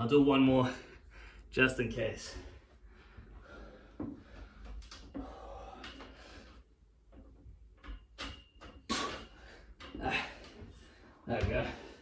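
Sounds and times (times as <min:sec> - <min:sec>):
man breathing hard and straining: 0:02.8 - 0:06.7.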